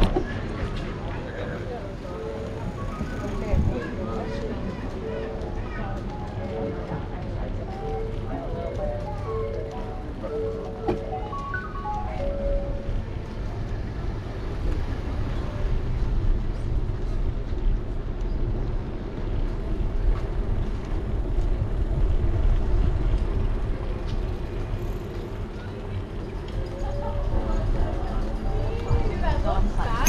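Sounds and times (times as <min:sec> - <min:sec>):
bicycle rolling noise: 0:00.0 - 0:30.0
wind rumble on microphone: 0:02.9 - 0:04.0, 0:13.2 - 0:26.0.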